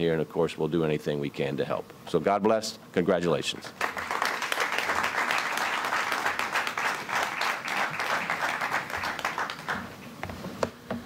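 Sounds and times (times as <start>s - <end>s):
audience applauding: 3.8s - 10.1s.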